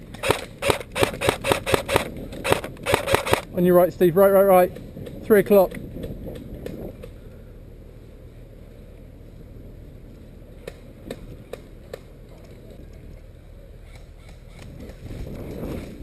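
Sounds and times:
wind rumble: 0.0 - 16.0
airsoft gun shots: 0.1 - 3.5.

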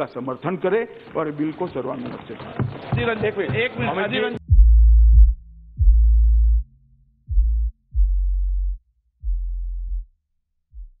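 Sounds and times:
electronic music deep bass booms: 4.4 - 10.1.

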